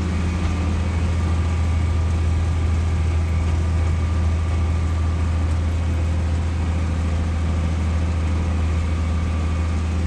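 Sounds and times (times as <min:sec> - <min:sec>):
tractor engine hum inside cab: 0:00.0 - 0:10.0.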